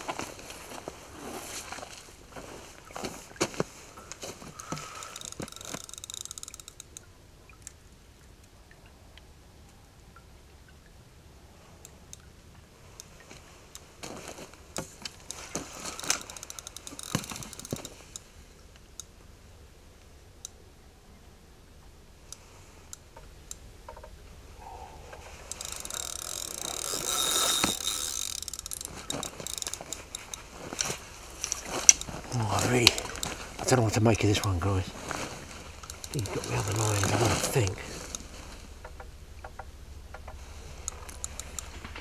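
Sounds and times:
fishing reel clicking and whirring: 0:04.6 - 0:07.0, 0:15.3 - 0:18.2, 0:25.5 - 0:32.1, 0:35.8 - 0:37.2, 0:40.8 - 0:42.0.

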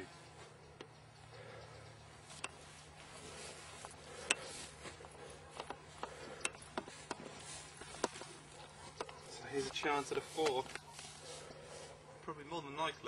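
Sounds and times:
faint rustling: 0:00.1 - 0:12.2.

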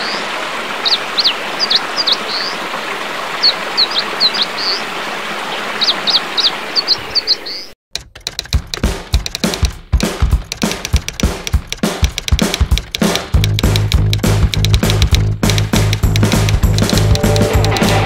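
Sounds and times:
stream running over rocks: 0:00.0 - 0:07.3
small bird singing: 0:00.8 - 0:02.6, 0:03.4 - 0:04.9, 0:05.5 - 0:07.8.

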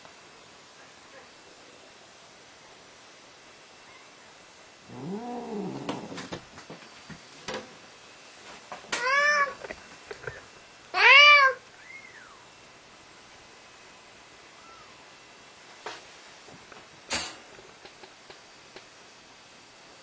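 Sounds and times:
cat meowing: 0:09.0 - 0:09.6, 0:11.0 - 0:11.6.

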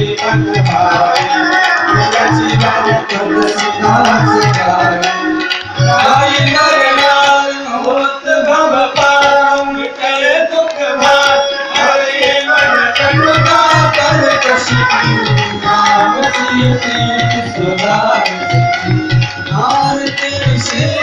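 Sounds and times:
sustained accompanying notes: 0:00.0 - 0:08.8, 0:11.0 - 0:21.0
person singing devotional song: 0:00.0 - 0:21.0
tabla-like drum beat: 0:00.0 - 0:21.0.

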